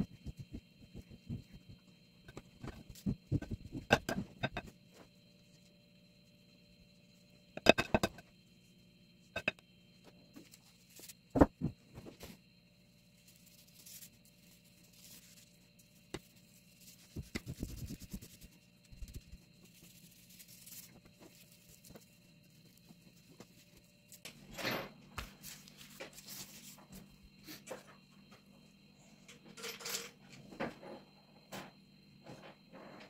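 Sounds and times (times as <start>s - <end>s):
faint hum: 0.0s - 33.0s
knife tapping and scraping: 2.3s - 4.7s, 7.6s - 8.2s, 9.4s - 9.6s.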